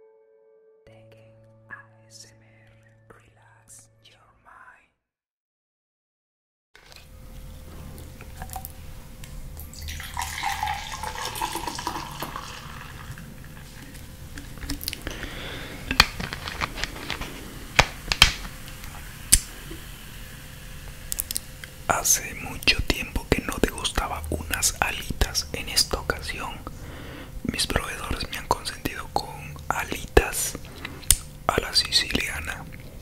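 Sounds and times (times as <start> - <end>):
soda pouring over ice: 9.6 - 13.8
sharp clicks and pops: 15.9 - 17.2, 17.8 - 18.5.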